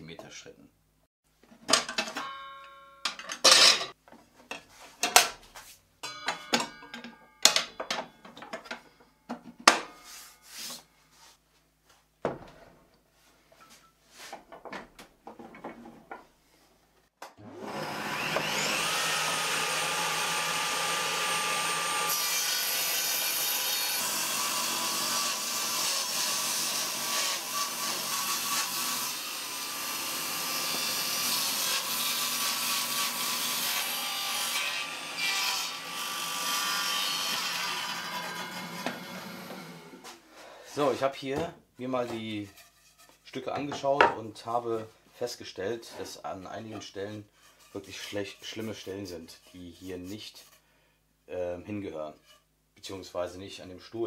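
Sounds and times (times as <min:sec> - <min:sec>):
table saw motor whining: 0:17.4 - 0:26.2, 0:37.2 - 0:40.0.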